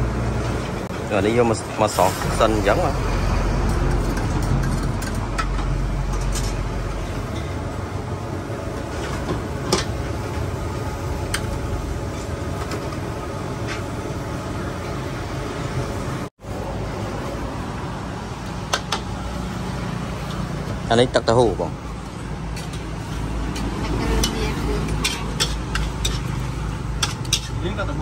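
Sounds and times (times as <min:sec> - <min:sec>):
food frying in a wok: 0:00.0 - 0:20.9, 0:22.0 - 0:27.9
gas burner roaring: 0:00.0 - 0:28.0.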